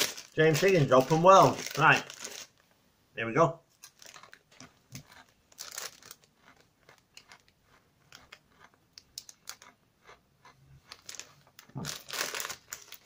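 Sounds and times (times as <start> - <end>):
person chewing crunchy snacks: 3.8 - 13.0.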